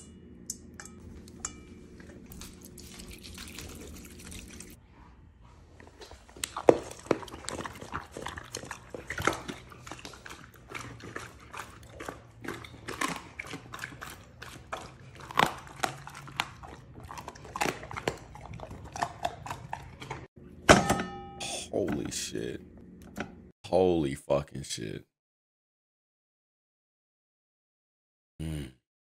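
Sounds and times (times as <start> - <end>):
dog crunching and chewing food: 2.0 - 4.8, 5.8 - 20.3.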